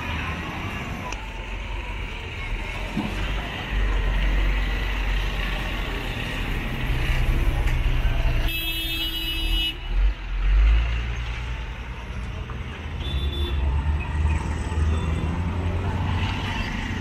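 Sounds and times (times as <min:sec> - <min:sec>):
traffic engine rumble: 0:00.0 - 0:17.0
car horn: 0:08.4 - 0:09.9, 0:13.0 - 0:13.6.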